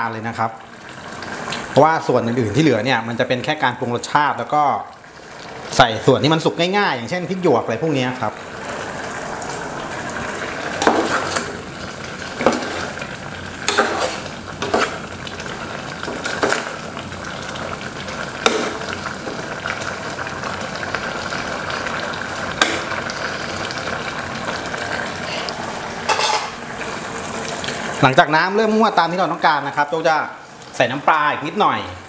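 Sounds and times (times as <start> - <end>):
curry sizzling and bubbling: 0.0 - 32.0
metal spoon scraping pot: 13.6 - 15.0, 26.1 - 26.6.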